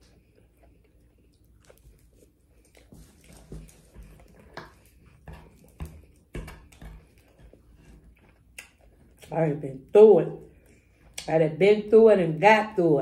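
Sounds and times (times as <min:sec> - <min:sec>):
chewing crispy food: 0:00.0 - 0:09.4.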